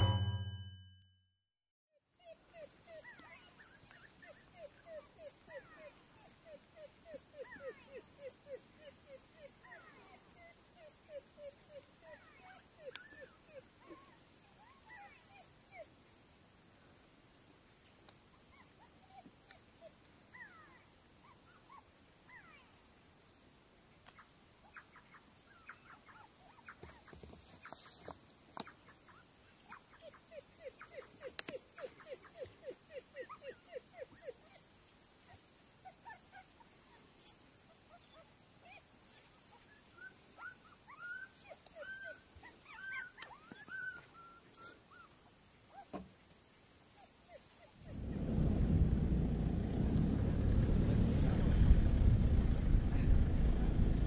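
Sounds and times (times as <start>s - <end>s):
wild dogs making high calls: 2.1s - 16.0s, 24.2s - 46.0s, 46.9s - 48.6s.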